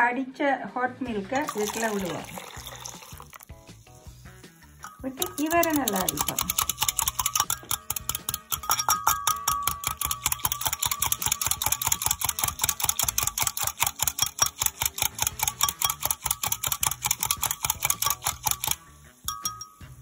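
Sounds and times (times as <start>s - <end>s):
whisk clicking against glass: 4.8s - 19.8s.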